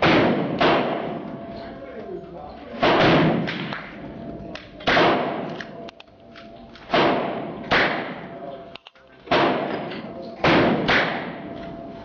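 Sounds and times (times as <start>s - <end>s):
fainter gunshots: 0.0s - 1.3s, 2.8s - 4.0s, 4.8s - 5.6s, 6.8s - 8.3s, 9.3s - 9.8s, 10.4s - 11.4s
loud gunshots with echo: 0.0s - 1.4s, 2.8s - 4.0s, 4.8s - 5.6s, 6.9s - 8.4s, 9.3s - 11.4s.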